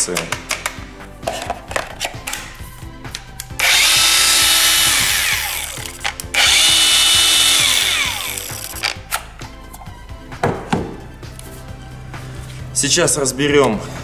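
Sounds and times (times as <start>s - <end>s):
angle grinder whining: 3.6s - 9.0s.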